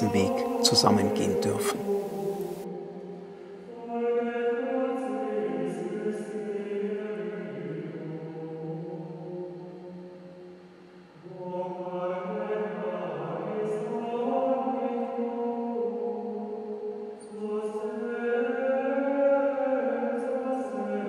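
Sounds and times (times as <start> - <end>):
male choir singing chant: 0.0 - 9.6, 11.2 - 21.0.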